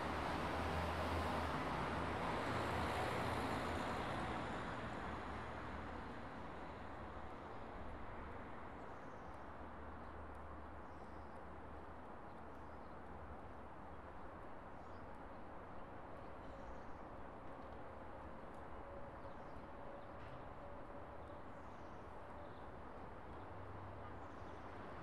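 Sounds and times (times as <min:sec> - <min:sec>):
faint outdoor background noise: 0:00.0 - 0:25.0.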